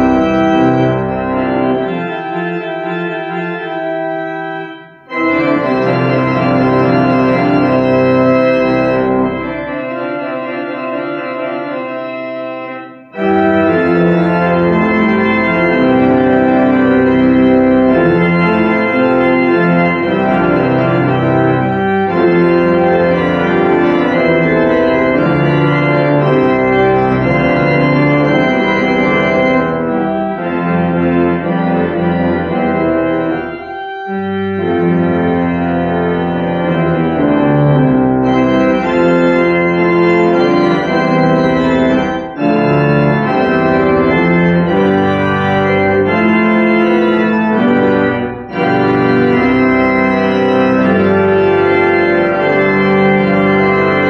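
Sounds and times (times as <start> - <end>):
church organ chords: 0.0 - 54.0.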